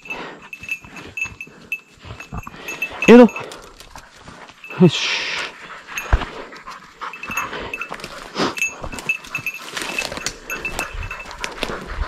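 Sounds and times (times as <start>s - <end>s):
dog moving through undergrowth: 2.0s - 4.7s, 5.8s - 12.0s.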